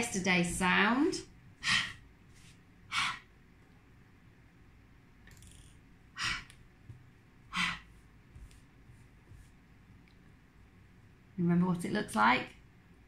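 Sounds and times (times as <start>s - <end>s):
short sharp breaths: 1.6s - 2.0s, 2.9s - 3.3s, 6.2s - 6.5s, 7.5s - 7.9s.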